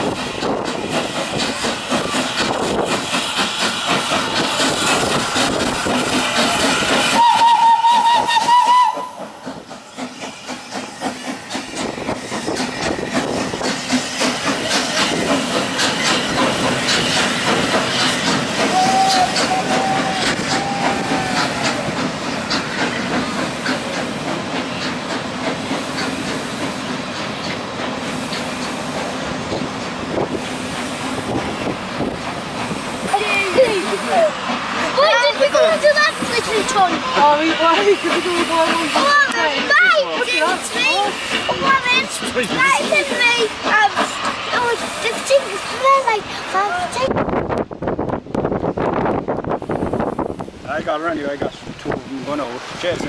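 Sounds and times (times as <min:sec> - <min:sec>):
steam locomotive exhaust beating: 0:00.0 - 0:53.0
train wheels clicking on rail joints: 0:00.0 - 0:53.0
steam whistle: 0:07.1 - 0:09.2, 0:18.7 - 0:21.6.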